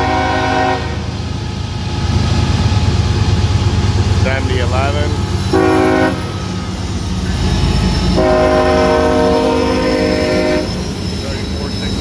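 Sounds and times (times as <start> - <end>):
locomotive air horn blasts: 0.0 - 1.1, 5.5 - 6.4, 8.2 - 10.8
locomotive rumble: 0.0 - 12.0.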